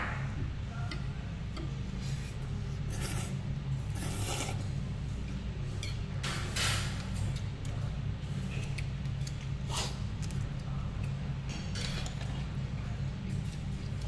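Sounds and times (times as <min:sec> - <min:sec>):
steady low hum: 0:00.0 - 0:14.0
slurping noodles: 0:02.9 - 0:04.6.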